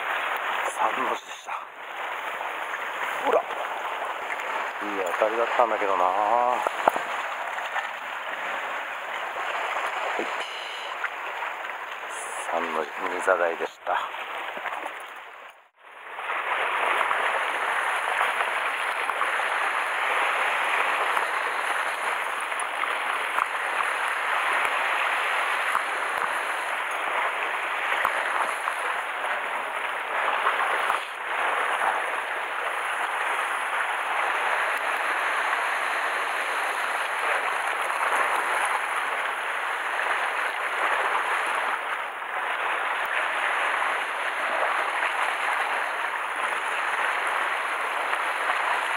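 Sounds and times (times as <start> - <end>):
sea water washing against rocks: 0.0 - 48.9.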